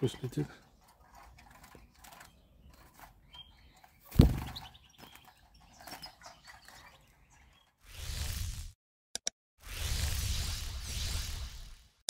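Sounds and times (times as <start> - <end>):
faint bird chirps: 0.1 - 7.8
flutter of bird wings: 4.1 - 6.2, 7.8 - 8.8, 9.6 - 12.0.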